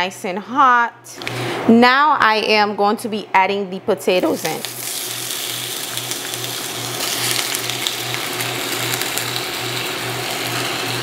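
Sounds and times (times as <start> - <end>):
potatoes sizzling in oil: 4.2 - 11.0.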